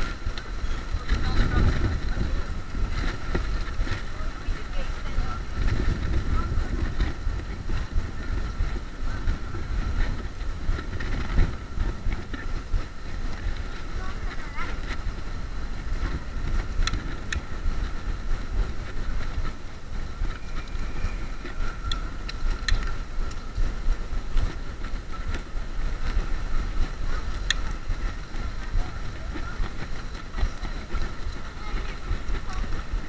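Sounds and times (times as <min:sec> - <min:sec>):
electric scooter rumble and whine: 0:00.0 - 0:33.0
scooter rattling clicks: 0:15.8 - 0:17.6, 0:21.4 - 0:33.0.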